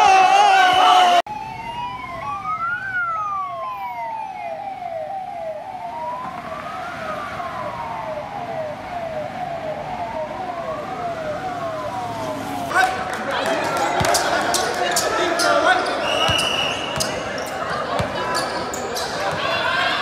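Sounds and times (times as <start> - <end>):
ambulance siren yelp and wail: 0.0 - 13.2.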